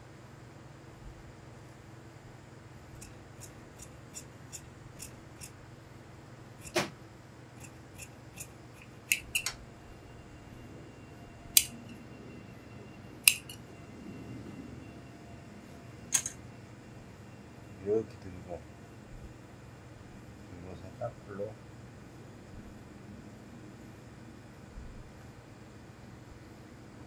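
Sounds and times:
shears cutting cloth: 0:03.0 - 0:05.6, 0:06.6 - 0:06.9, 0:07.6 - 0:09.5.

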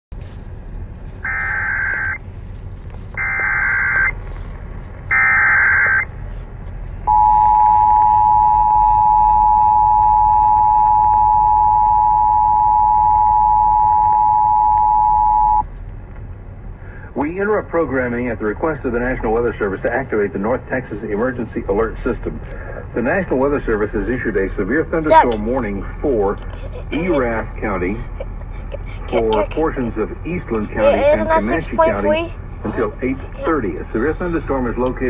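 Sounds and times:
low hum: 0:00.1 - 0:35.0
screeching data bursts: 0:01.2 - 0:02.2
two-tone attention signal: 0:07.1 - 0:15.6.

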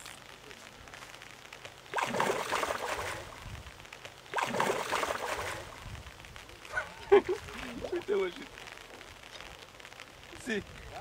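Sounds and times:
water splashing: 0:01.5 - 0:09.2.

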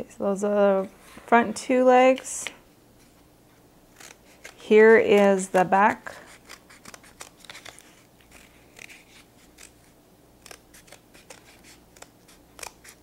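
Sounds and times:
scissors snipping cardboard: 0:04.0 - 0:05.7, 0:06.3 - 0:09.8, 0:10.4 - 0:13.0.

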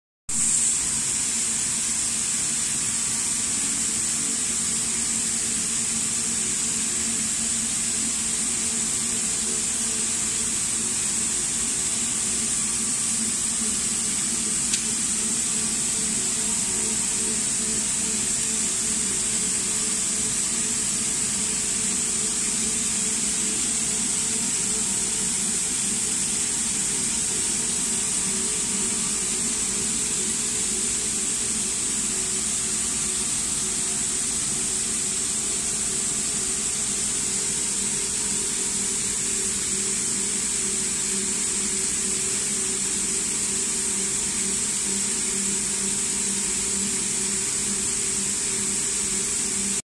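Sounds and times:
constant high hiss: 0:00.3 - 0:49.8
winding machine motor hum: 0:00.4 - 0:49.8.

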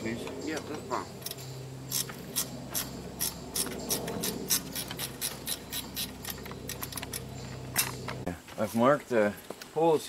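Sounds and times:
steady low hum: 0:00.0 - 0:08.5
ratchet wrench clicking: 0:01.2 - 0:08.0.

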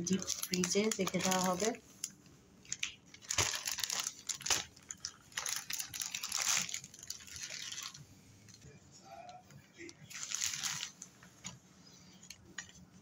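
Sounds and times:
plastic bag crinkling: 0:00.0 - 0:08.6, 0:09.8 - 0:11.1.

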